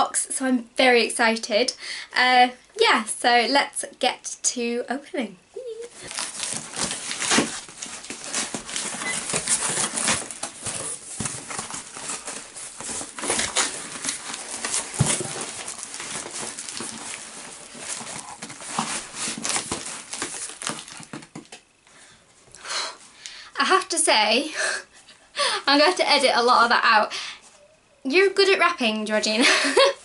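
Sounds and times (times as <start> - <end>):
cardboard tearing and scraping: 6.0 - 21.5
packing tape ripping: 6.0 - 21.5.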